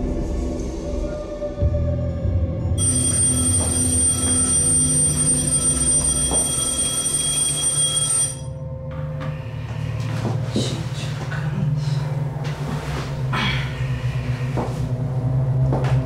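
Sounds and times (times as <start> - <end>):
alarm clock ringing: 2.8 - 8.6.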